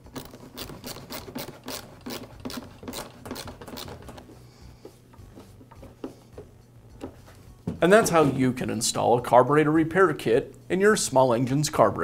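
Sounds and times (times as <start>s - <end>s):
soft knocks of pipe handled: 4.8s - 7.8s.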